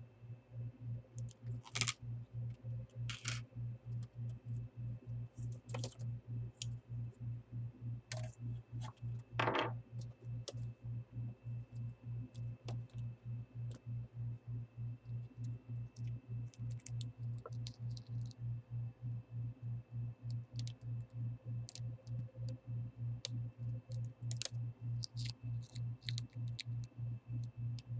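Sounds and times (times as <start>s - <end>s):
plastic laptop parts clicking: 1.2s - 2.0s, 3.1s - 3.4s, 5.5s - 6.0s, 23.9s - 26.8s.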